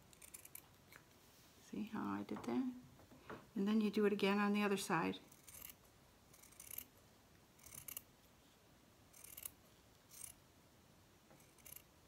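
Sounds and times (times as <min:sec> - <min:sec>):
scissors cutting felt: 0:00.1 - 0:01.0, 0:05.3 - 0:06.9, 0:07.6 - 0:08.1, 0:09.2 - 0:10.4.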